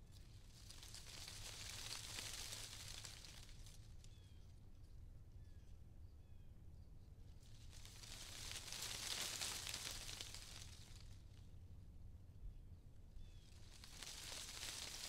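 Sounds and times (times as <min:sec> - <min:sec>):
soft high hiss: 0:07.3 - 0:11.5, 0:13.0 - 0:15.0.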